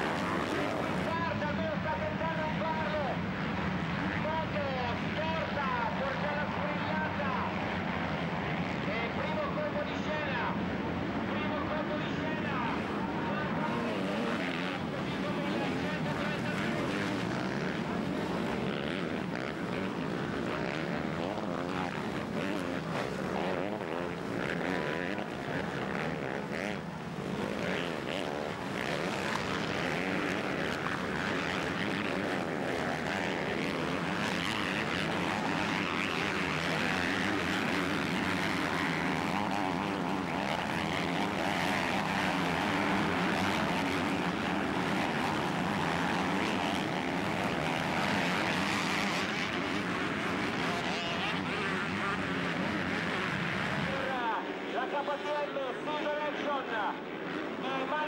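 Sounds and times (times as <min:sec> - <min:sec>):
motocross bike engines racing: 0:00.0 - 0:58.0.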